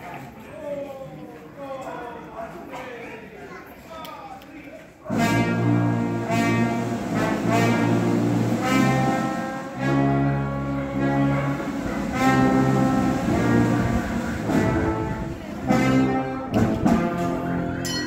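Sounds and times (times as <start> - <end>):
brass band playing march: 5.1 - 18.0.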